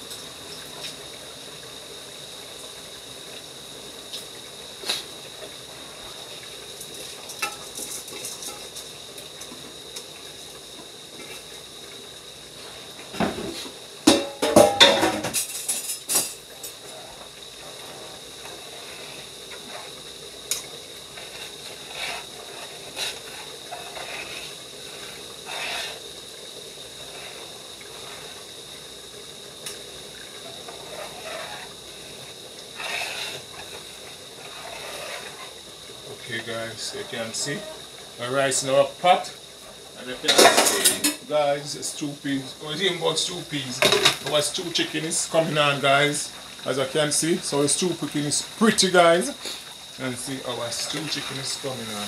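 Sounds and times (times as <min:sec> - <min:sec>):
pots simmering hiss: 0:00.0 - 0:52.0
metal pot and spoon clattering: 0:14.1 - 0:16.4.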